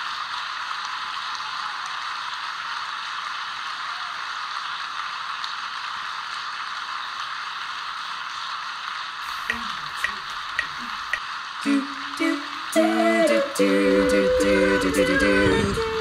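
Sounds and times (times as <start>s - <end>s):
steady static hiss: 0.0s - 16.0s.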